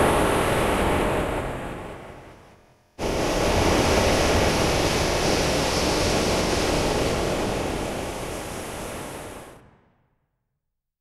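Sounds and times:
dense surf-like noise wash: 0.0 - 9.8.

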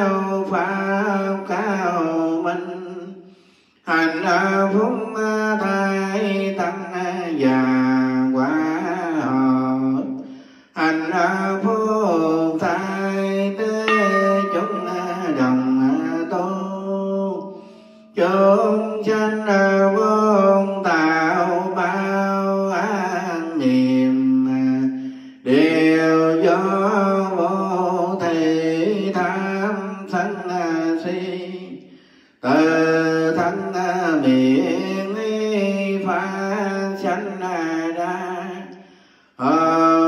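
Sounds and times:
man chanting melodically: 10.8 - 31.8, 32.4 - 38.7.

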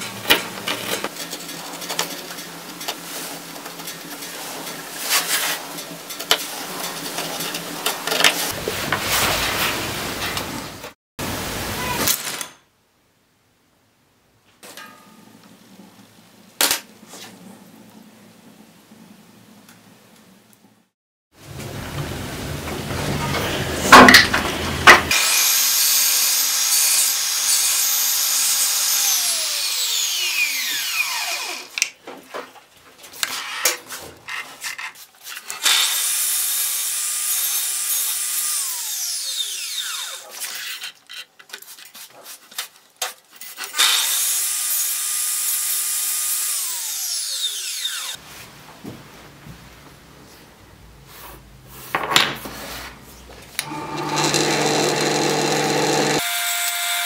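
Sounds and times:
miter saw whining: 53.6 - 57.0.

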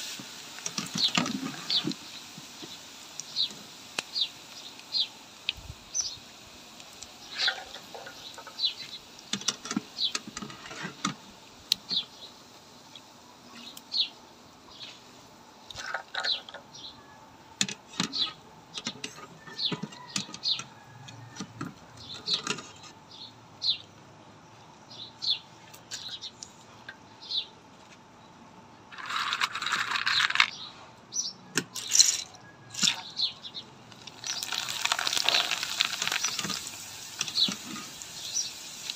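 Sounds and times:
sizzling in hot oil: 0.0 - 12.8, 31.8 - 33.3, 33.9 - 38.9
small birds chirping: 0.7 - 11.0, 11.7 - 17.3, 17.9 - 28.4, 29.9 - 32.1, 32.7 - 38.9.

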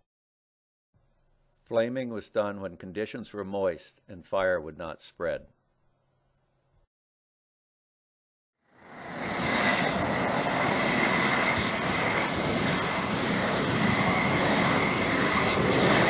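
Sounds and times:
propane torch roaring: 8.6 - 16.0.

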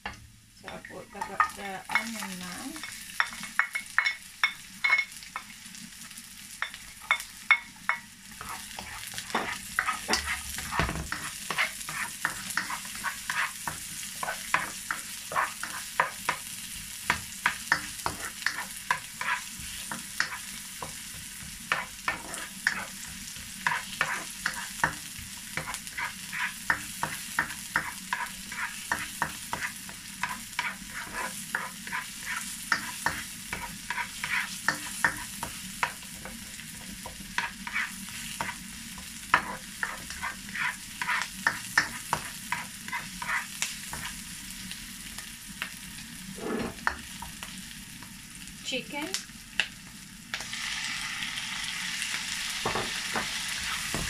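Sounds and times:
onion sizzling in oil: 0.0 - 54.0
spatula scraping pan: 8.3 - 16.5, 17.1 - 44.2, 46.3 - 47.0.

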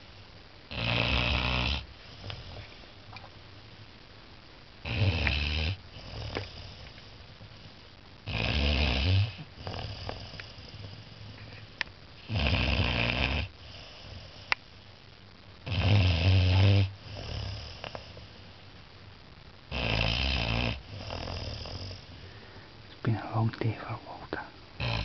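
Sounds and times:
puppy snoring: 0.7 - 2.9, 4.8 - 11.6, 12.2 - 14.8, 15.6 - 18.4, 19.7 - 22.2, 24.8 - 25.0
soft breaths: 1.8 - 3.2, 5.8 - 8.1, 9.3 - 12.9, 16.5 - 18.7, 20.8 - 25.0.

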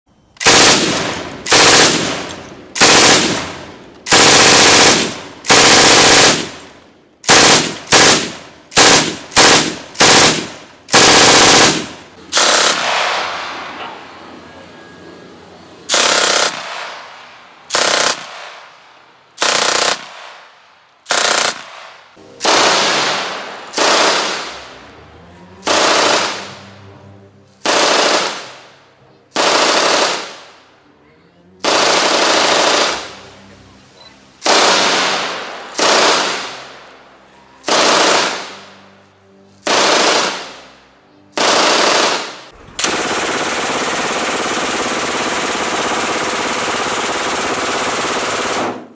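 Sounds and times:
machine gun bursts: 0.4 - 13.2, 15.9 - 16.8, 17.7 - 18.5, 19.4 - 20.2, 21.1 - 21.7, 22.4 - 24.5, 25.6 - 26.5, 27.7 - 28.6, 29.4 - 30.4, 31.6 - 33.1, 34.4 - 36.7, 37.6 - 38.5, 39.7 - 40.5, 41.4 - 48.9
gunfire echo: 0.4 - 14.0, 15.9 - 24.8, 25.6 - 26.7, 34.4 - 36.9.

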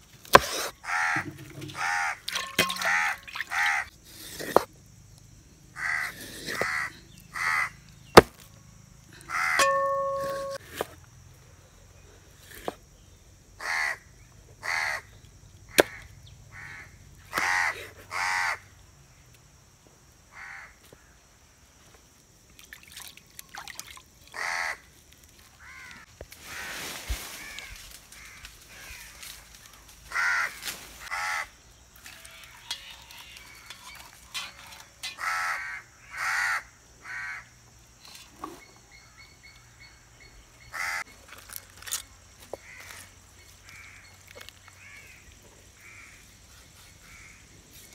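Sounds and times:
crows cawing: 0.9 - 3.8, 5.8 - 7.7, 13.6 - 14.0, 14.6 - 15.0, 20.3 - 20.8, 24.4 - 24.8, 25.6 - 26.0, 30.1 - 31.5, 32.6 - 37.5, 40.8 - 41.0.

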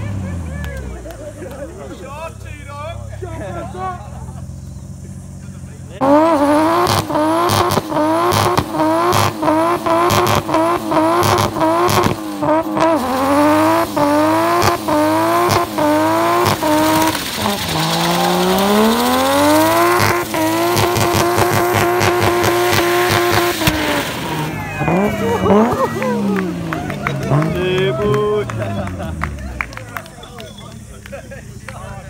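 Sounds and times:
tyres spinning: 0.0 - 32.0
car engine revving high: 3.4 - 30.0
sharp crack of rev cut: 6.0 - 29.4.

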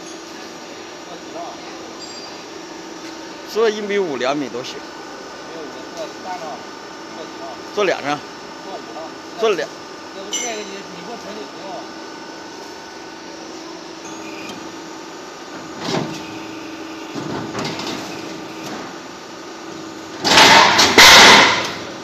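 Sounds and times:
roll forming machine humming: 0.0 - 22.0
die stamping metal sheet: 20.2 - 21.9.

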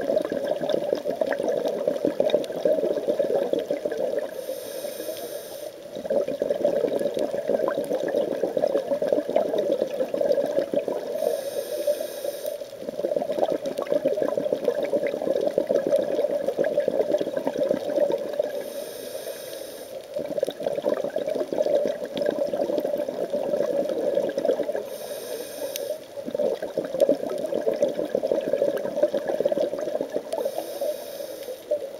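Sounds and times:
exhaled bubbles underwater: 0.0 - 4.5, 5.8 - 18.8, 20.0 - 31.9
regulator inhale hiss: 4.3 - 5.8, 11.0 - 12.7, 18.5 - 20.1, 24.8 - 26.1, 30.3 - 31.9.

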